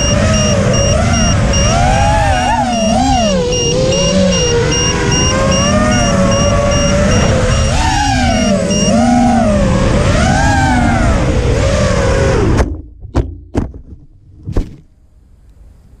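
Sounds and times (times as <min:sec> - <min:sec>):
drone motors whining: 0:00.0 - 0:12.6.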